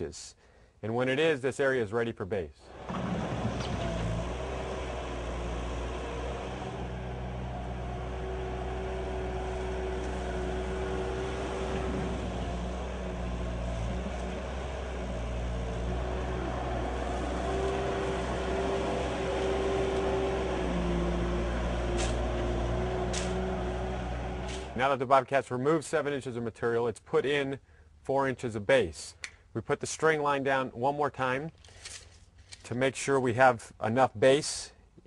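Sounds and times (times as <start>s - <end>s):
loader engine running: 2.7s - 25.0s.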